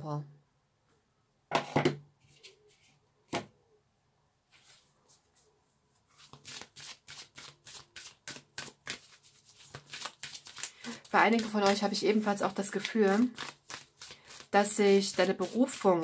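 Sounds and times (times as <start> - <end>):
cards shuffling: 6.1 - 12.0, 12.6 - 15.9.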